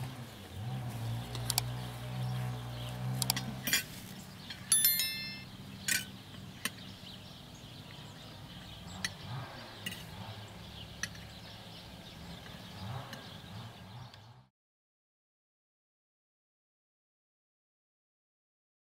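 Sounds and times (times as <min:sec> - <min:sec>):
light ticks: 0:01.3 - 0:01.7
tableware clinking: 0:04.7 - 0:06.1.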